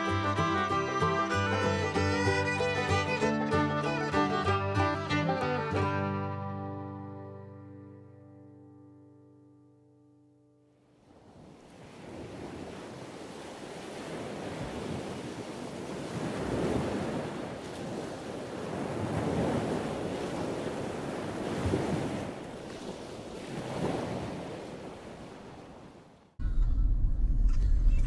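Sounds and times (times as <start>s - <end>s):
wind: 0.0s - 7.2s, 10.6s - 28.0s
waves breaking: 10.9s - 26.4s
low rumble: 26.4s - 28.0s.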